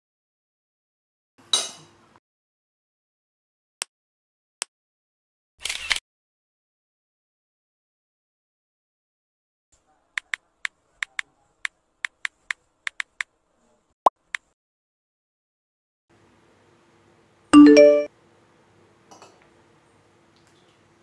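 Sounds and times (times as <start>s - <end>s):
notification chime: 17.6s - 18.1s.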